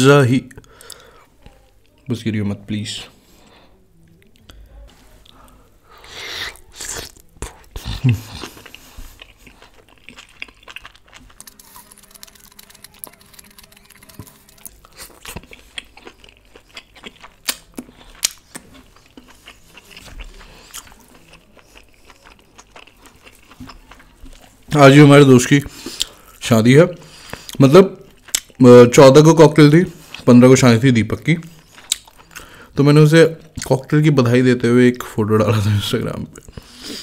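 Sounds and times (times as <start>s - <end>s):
person chewing food: 5.2s - 26.4s, 27.0s - 28.6s, 31.1s - 32.8s, 36.3s - 37.0s.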